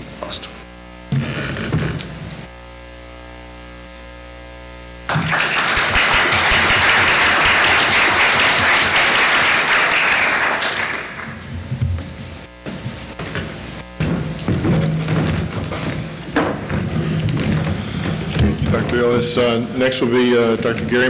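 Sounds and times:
electrical hum: 0.0 - 21.0
audience applause: 5.1 - 11.4.

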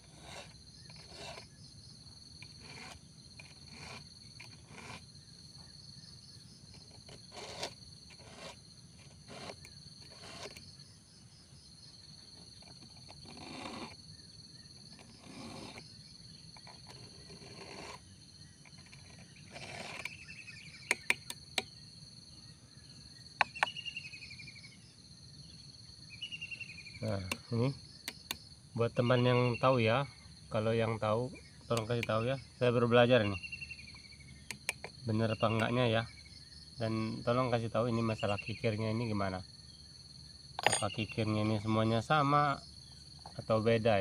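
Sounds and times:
file rasping on chainsaw chain: 0.0 - 1.5, 2.3 - 5.1, 6.7 - 10.6, 12.6 - 14.0, 14.9 - 15.8, 16.6 - 18.0, 18.8 - 20.2
insects buzzing: 0.0 - 44.0.

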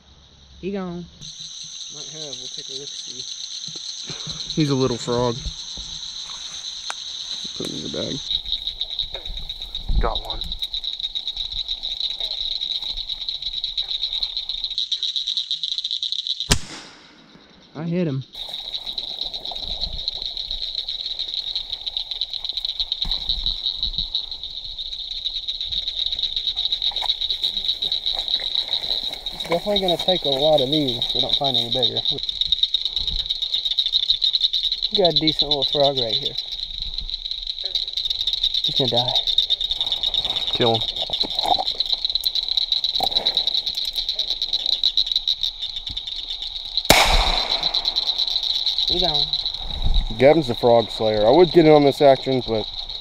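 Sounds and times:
frogs calling: 0.0 - 53.0
footsteps through wet grass: 5.5 - 9.9, 18.4 - 32.4.

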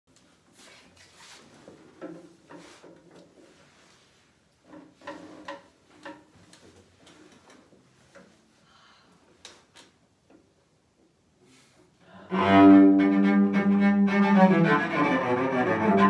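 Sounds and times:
wooden knocks and taps: 4.7 - 8.3.

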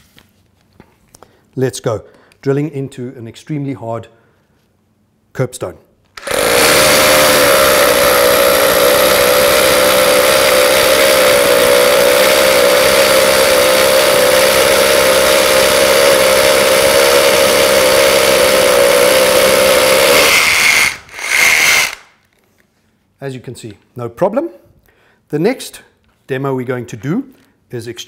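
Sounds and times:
rotary hammer drilling concrete: 6.2 - 22.2.

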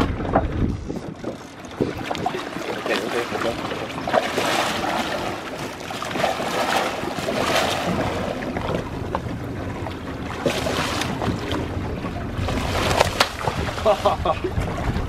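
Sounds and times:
wind noise on microphone: 0.0 - 2.9, 4.8 - 15.0
sea wash: 0.0 - 15.0
fish thrashing and splashing: 1.7 - 9.1, 10.3 - 14.3.

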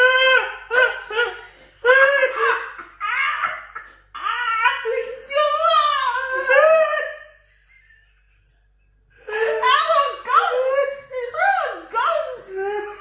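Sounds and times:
woman laughing hard: 0.1 - 10.8.

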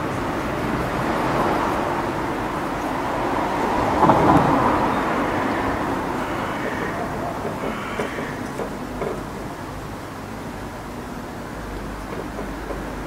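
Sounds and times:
vehicle passing: 0.0 - 9.6
outdoor street noise: 0.0 - 13.0.

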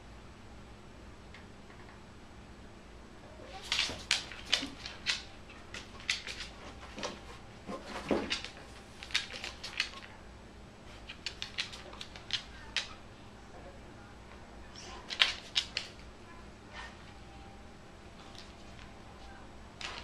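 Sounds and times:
dog claws clicking on wooden floor: 3.6 - 10.1, 11.0 - 13.0, 15.1 - 16.0.

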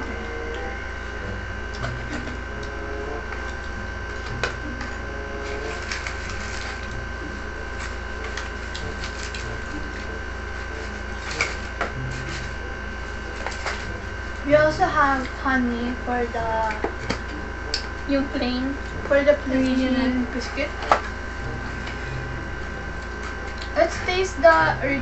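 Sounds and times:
steady hum: 0.0 - 25.0
paper wrappers crinkling: 3.4 - 7.0, 7.6 - 12.6.

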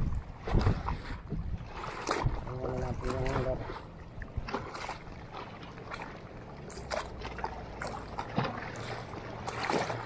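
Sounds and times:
water lapping against boat hull: 0.0 - 10.0
sharp splashes or knocks: 1.7 - 3.8, 6.7 - 10.0.

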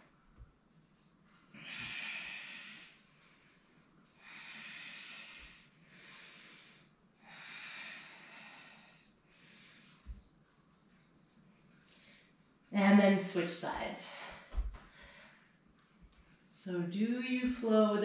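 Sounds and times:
woman breathing: 1.4 - 10.3, 11.9 - 12.4, 14.0 - 15.6.

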